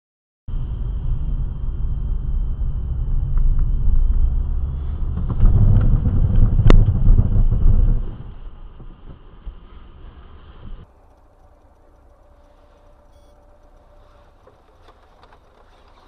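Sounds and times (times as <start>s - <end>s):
faint high whine: 0.5s - 5.0s, 9.6s - 16.0s
car engine and road noise: 0.5s - 16.0s.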